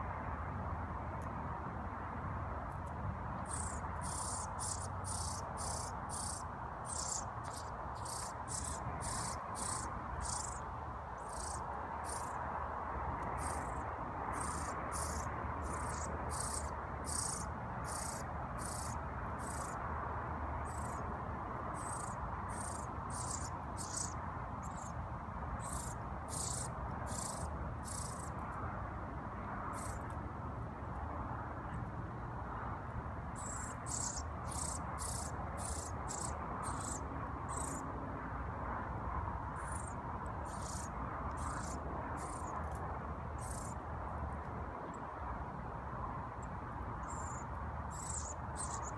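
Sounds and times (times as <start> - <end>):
steady background hum: 3.1 - 48.9
fledgling bird peeping: 3.5 - 10.6, 14.4 - 19.8, 21.8 - 24.9, 25.6 - 28.3.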